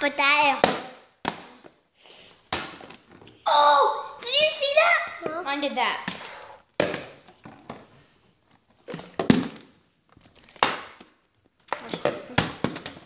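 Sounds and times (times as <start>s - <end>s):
plastic bottles knocking on hard surface: 6.8s - 7.9s, 8.9s - 9.7s, 10.6s - 13.0s.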